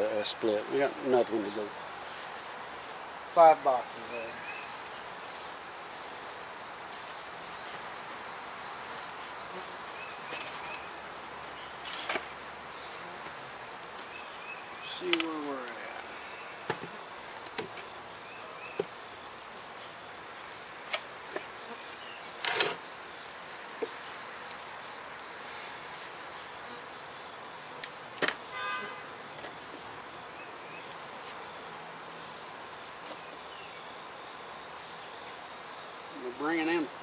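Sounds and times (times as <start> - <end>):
insects singing drone: 0.0 - 37.0
knocks of wooden hive parts: 11.8 - 12.4, 16.6 - 18.0, 18.6 - 19.0, 20.8 - 21.6, 22.4 - 22.9, 27.8 - 28.4.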